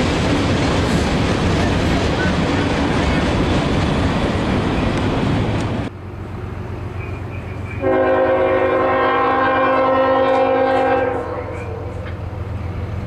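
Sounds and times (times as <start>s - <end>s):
train cars rumbling by: 0.0s - 13.0s
locomotive air horn chord: 7.8s - 12.1s.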